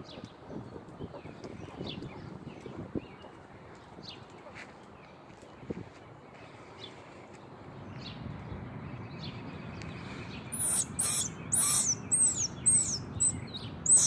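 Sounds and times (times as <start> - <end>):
baby squirrel squeaking: 10.5 - 14.0.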